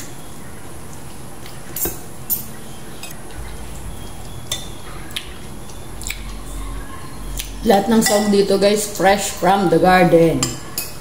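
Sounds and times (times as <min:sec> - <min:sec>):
cutlery clinking on plates: 0:08.0 - 0:08.3.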